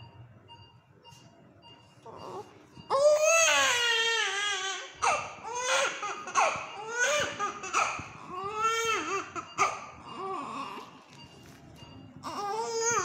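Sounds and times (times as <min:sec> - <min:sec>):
infant crying: 0:02.2 - 0:10.8, 0:12.2 - 0:13.0.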